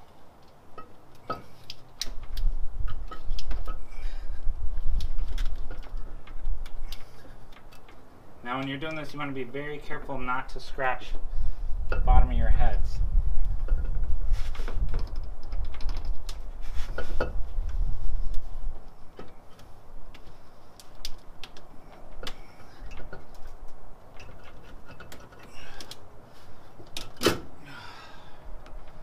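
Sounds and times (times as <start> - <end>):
low rumble: 11.2 - 19.2
metallic clicks and knocks: 14.8 - 18.4, 19.0 - 26.1.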